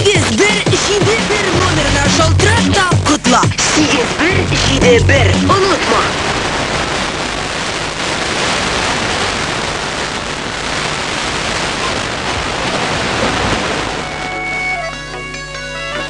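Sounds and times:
faint radio music: 0.0 - 6.3
radio static hiss: 0.0 - 15.0.

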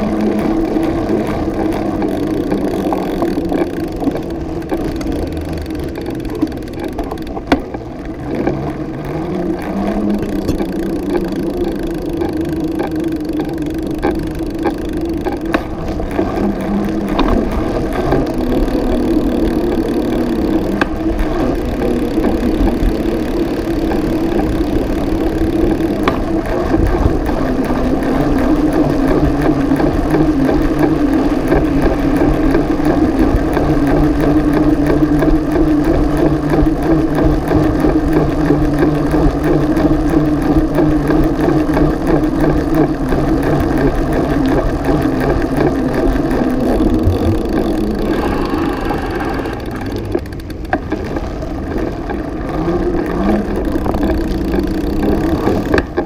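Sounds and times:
bicycle rattling over bumps: 0.0 - 56.0
bicycle tyres and wind rushing: 0.0 - 56.0.

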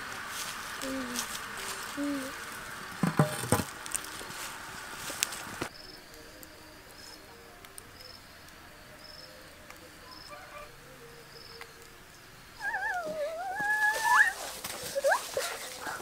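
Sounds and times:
faint insect chirping: 0.0 - 16.0
child yelling: 12.6 - 16.0.

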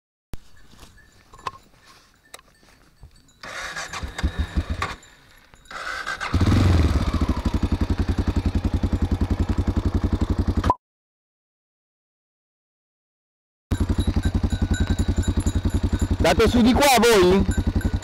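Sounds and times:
engine cranking: 3.3 - 10.6, 13.7 - 18.0
engine idling with thumping beat: 4.2 - 5.0, 6.4 - 10.6, 13.7 - 18.0.

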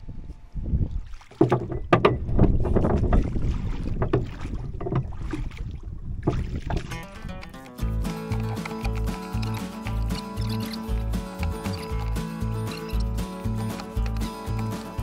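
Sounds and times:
wind rumbling on microphone: 0.0 - 7.6
oars splashing in water: 0.9 - 15.0.

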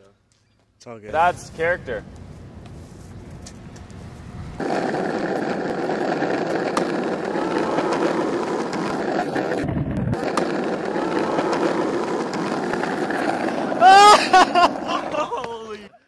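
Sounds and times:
skateboard wheels rolling on asphalt: 1.1 - 15.8
skateboard clacks: 4.6 - 15.6.

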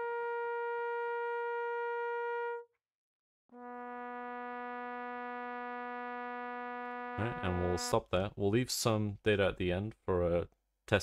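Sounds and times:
trombone long tones: 0.0 - 2.6, 3.5 - 8.0.

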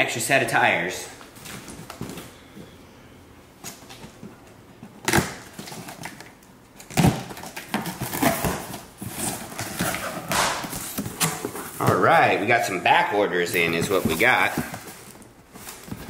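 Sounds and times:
cardboard rustling and scraping: 7.0 - 12.5, 13.4 - 16.0.

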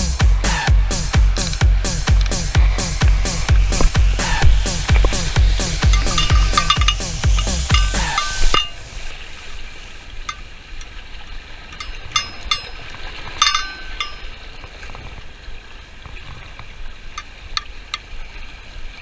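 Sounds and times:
waves washing against rocks: 0.7 - 19.0
light wind: 0.8 - 19.0
fishing tackle metallic clinks: 5.1 - 9.1, 11.7 - 14.4.

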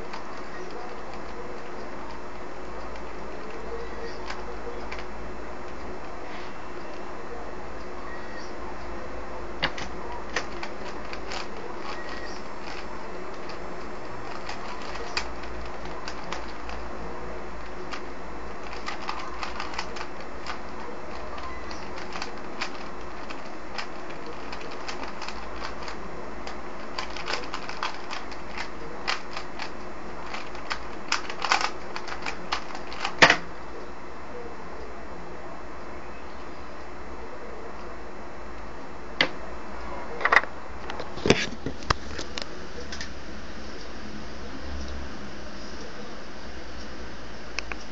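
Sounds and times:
puzzle cube clicking: 9.6 - 16.8, 18.6 - 33.4.

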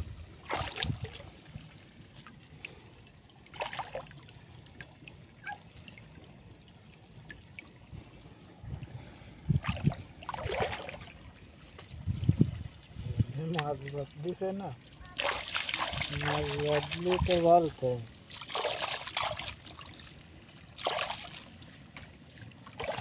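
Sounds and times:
river water trickling: 0.0 - 23.0
short loud splashes: 0.4 - 1.2, 15.1 - 17.4, 18.3 - 19.6, 20.8 - 21.4, 22.8 - 23.0.

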